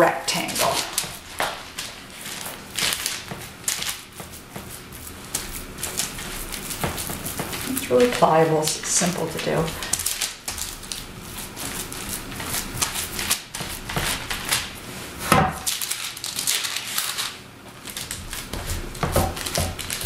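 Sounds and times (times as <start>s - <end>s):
hands patting raw meat: 0.9s - 8.2s.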